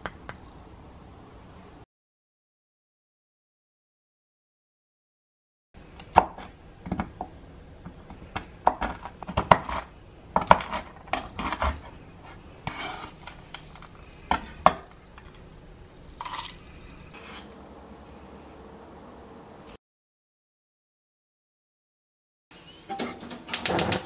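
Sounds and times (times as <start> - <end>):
knife scraping board: 10.5 - 13.5, 16.2 - 17.6.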